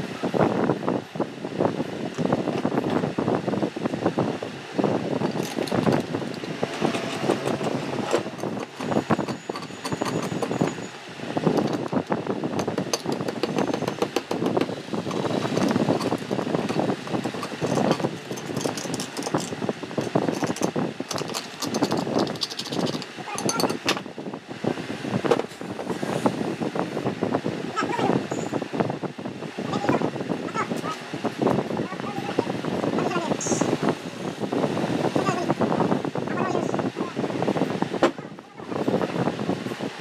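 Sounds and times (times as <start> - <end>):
steady rushing noise: 0.0 - 40.0
scraping and rubbing metal parts: 5.2 - 23.9
tool clicking on metal: 5.3 - 10.6, 12.6 - 23.9.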